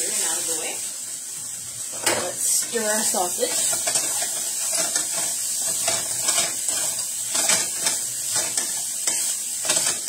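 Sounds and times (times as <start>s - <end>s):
sausage sizzling in a frying pan: 0.0s - 10.0s
utensil scraping a pan: 2.0s - 10.0s.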